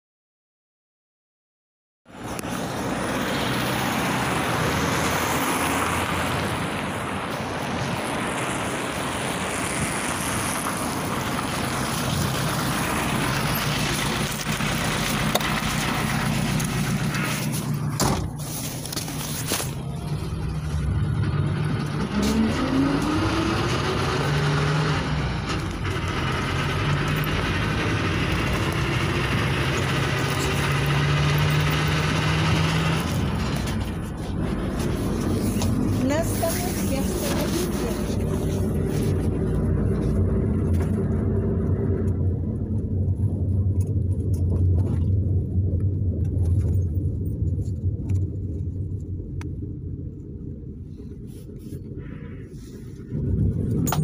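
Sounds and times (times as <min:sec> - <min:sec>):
minibus engine hum: 0:02.1 - 0:54.0
street traffic: 0:02.1 - 0:54.0.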